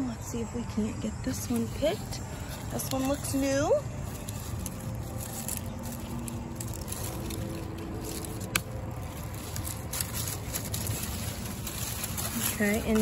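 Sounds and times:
vine tearing: 0:01.6 - 0:13.0
pumpkin stem snapping: 0:04.2 - 0:11.5.

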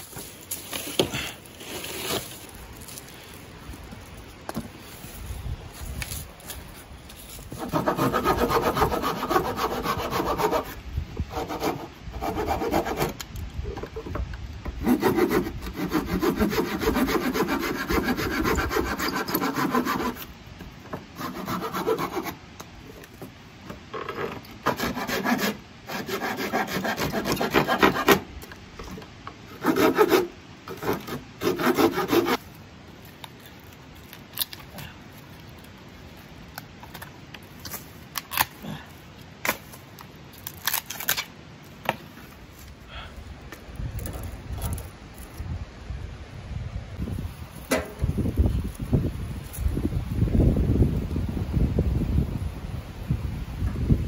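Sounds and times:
hand saw cutting wood: 0:07.5 - 0:13.2, 0:14.8 - 0:20.3, 0:21.1 - 0:22.4, 0:24.1 - 0:28.3, 0:29.5 - 0:32.4.

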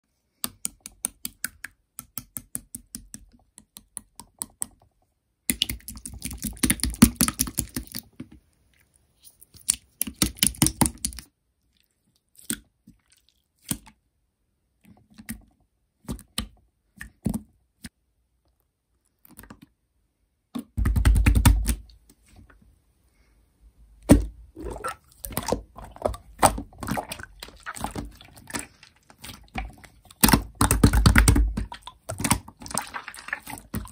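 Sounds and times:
slime squished by hand: 0:24.0 - 0:33.9
wet clicks and crackling pops: 0:25.2 - 0:33.9.

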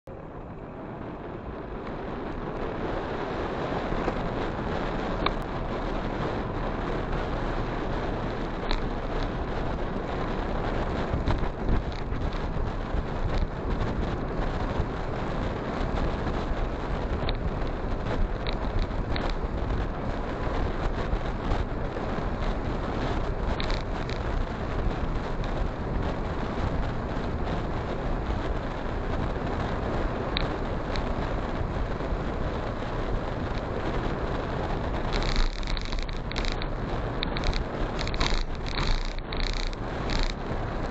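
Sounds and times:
wind and road noise on motorcycle: 0:00.0 - 0:40.9
faint ticks: 0:05.1 - 0:05.5, 0:08.1 - 0:09.8, 0:11.0 - 0:13.5, 0:17.1 - 0:21.7, 0:22.4 - 0:26.9, 0:30.3 - 0:31.7, 0:34.9 - 0:40.9.

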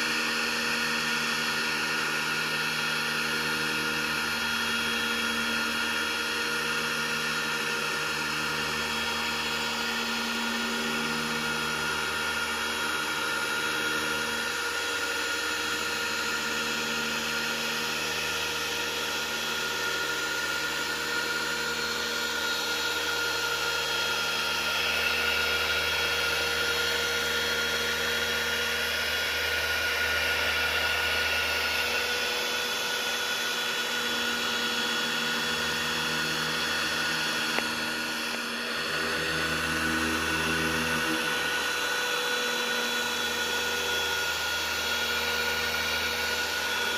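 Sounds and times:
car polisher motor whine: 0:00.0 - 0:46.9.

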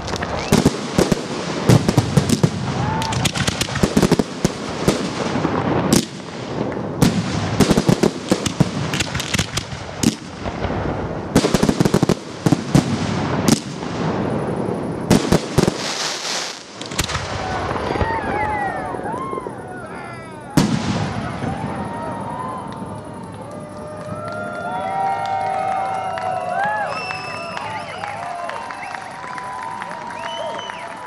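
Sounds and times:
fireworks hissing burst: 0:00.0 - 0:23.3
fireworks bangs: 0:00.0 - 0:31.0
fireworks crackle: 0:00.0 - 0:31.0.

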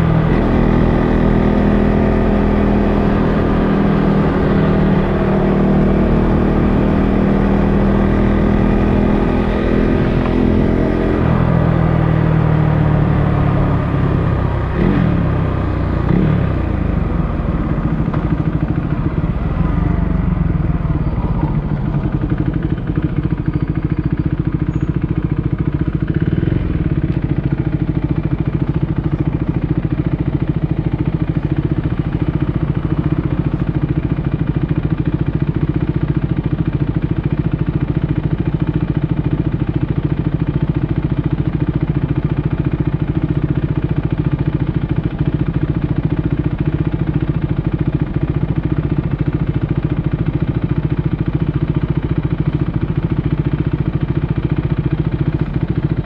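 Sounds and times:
motorcycle engine idling: 0:00.0 - 0:56.0.

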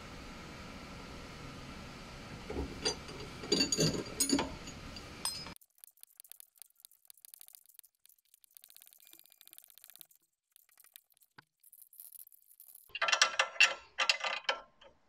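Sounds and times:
faint rapid ticking: 0:05.6 - 0:12.9.

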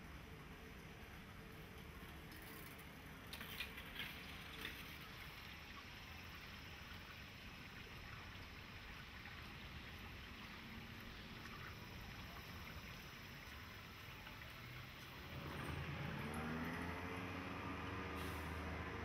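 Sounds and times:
water trickling in a canal: 0:00.0 - 0:19.0
low hum: 0:11.1 - 0:19.0
approaching vehicle: 0:15.2 - 0:19.0.

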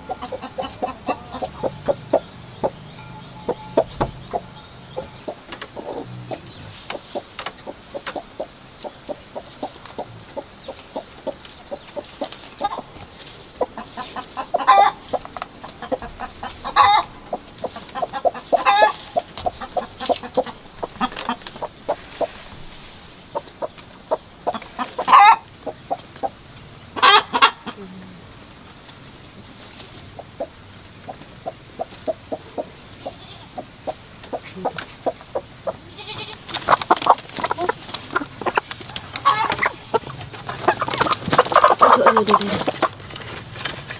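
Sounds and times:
hen drawn-out calls: 0:00.0 - 0:27.8, 0:30.1 - 0:42.9
hens clucking: 0:00.0 - 0:43.9.

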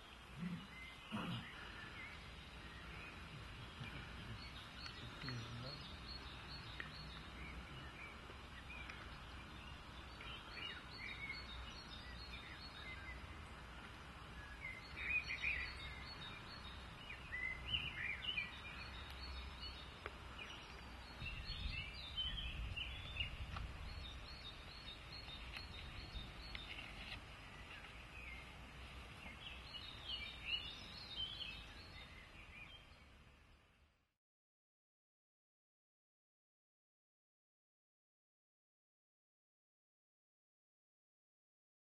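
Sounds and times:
bird chirps and calls: 0:00.0 - 0:13.3, 0:14.4 - 0:28.5, 0:29.1 - 0:33.1.

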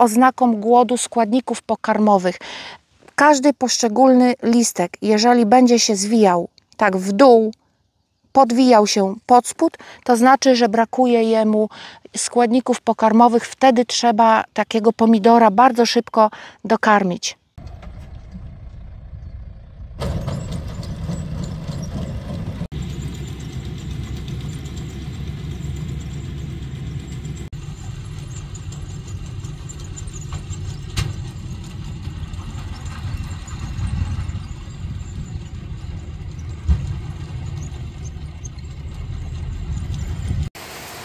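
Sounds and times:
tractor engine running: 0:17.6 - 0:41.0.

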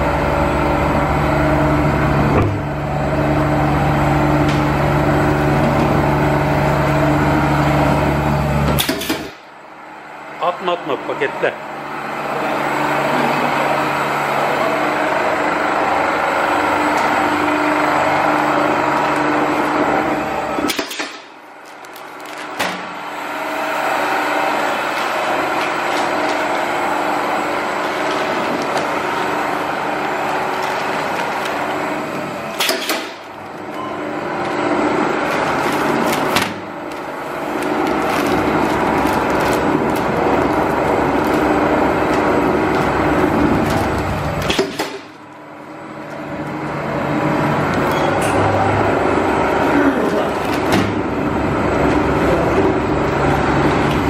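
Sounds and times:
slicing machine motor hum: 0:11.6 - 0:54.0.

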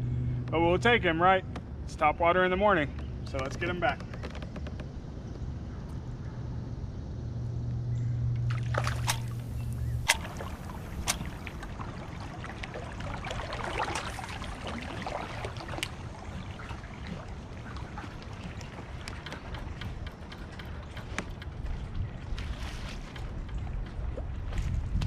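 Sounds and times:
low steady hum: 0:00.0 - 0:25.0
water sloshing against hull: 0:08.2 - 0:25.0
sharp clicks: 0:08.9 - 0:11.4.

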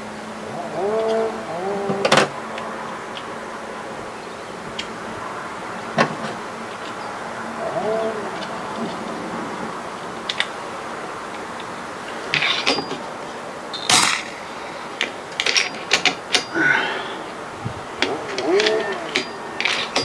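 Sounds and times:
air rifle shot: 0:13.8 - 0:14.6.

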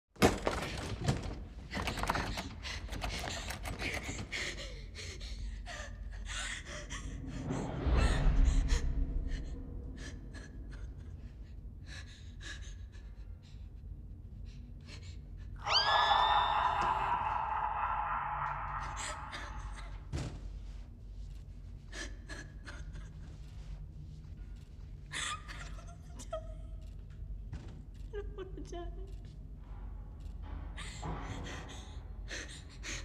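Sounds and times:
deep low rumble: 0:06.0 - 0:14.7
person gasping and breathing hard: 0:16.6 - 0:20.1.

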